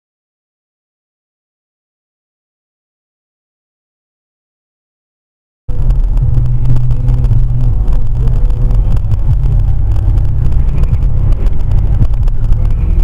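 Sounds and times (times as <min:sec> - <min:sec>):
car engine and road noise: 0:05.7 - 0:13.0.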